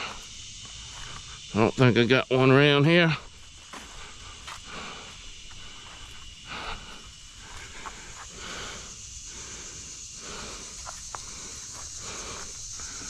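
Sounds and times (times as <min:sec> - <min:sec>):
man breathing: 0:00.0 - 0:01.5, 0:03.2 - 0:13.0.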